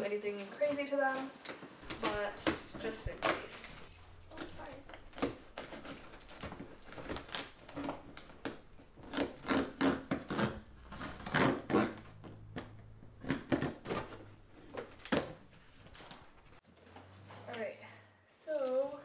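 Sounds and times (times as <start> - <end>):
box cutter scraping cardboard: 9.0 - 12.4, 13.2 - 14.8.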